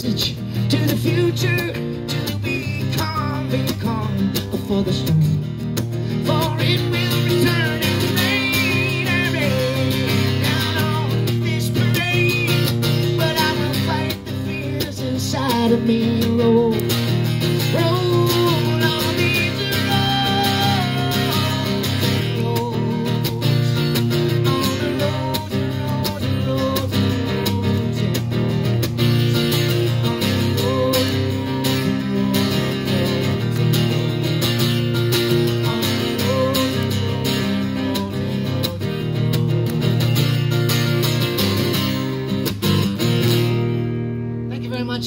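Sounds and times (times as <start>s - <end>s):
man singing: 0.0s - 39.6s, 44.5s - 45.0s
acoustic guitar strumming: 0.0s - 45.0s.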